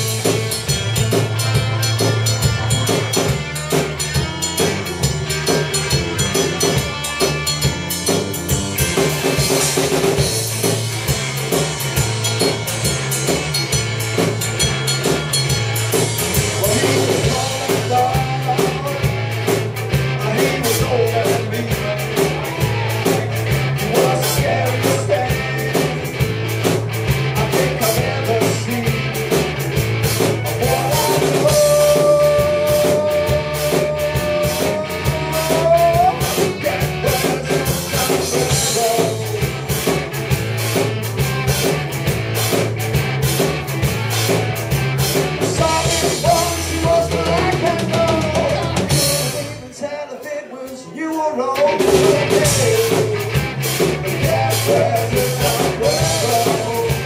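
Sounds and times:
rock band playing live: 0.0 - 57.0
man singing: 16.3 - 26.2, 27.2 - 29.4, 30.4 - 39.7, 45.4 - 57.0.

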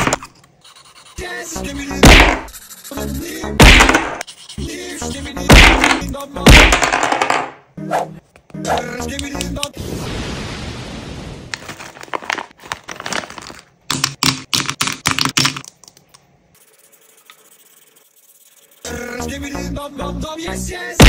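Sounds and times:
marker scratching on paper: 0.6 - 1.2, 2.4 - 3.2, 4.2 - 4.8, 16.6 - 19.1
plastic bag crinkling: 11.6 - 13.8.

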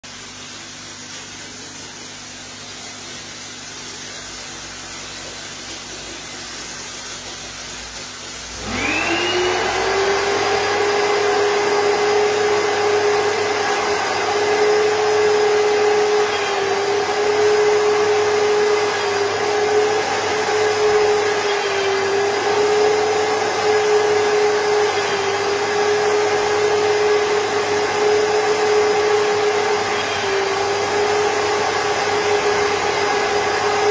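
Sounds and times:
vacuum motor whine: 8.5 - 33.9.

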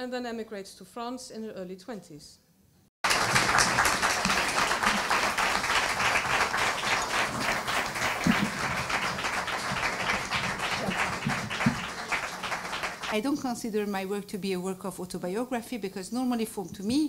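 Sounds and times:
audience applauding: 3.0 - 13.4.

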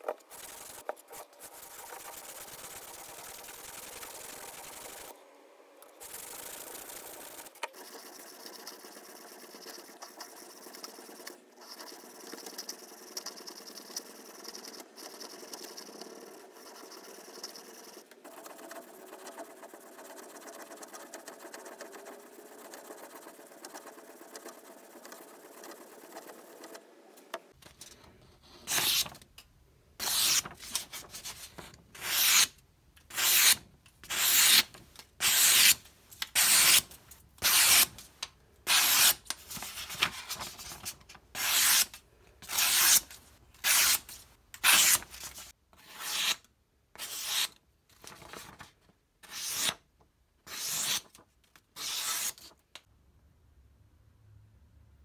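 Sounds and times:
knife slicing paper: 28.6 - 29.2, 30.0 - 35.8, 36.4 - 37.9, 38.7 - 46.4.

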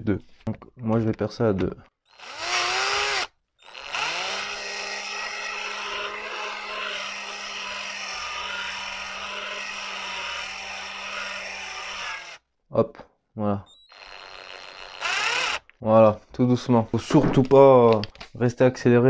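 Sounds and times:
electric drill drilling metal: 2.1 - 12.4, 13.8 - 15.7.

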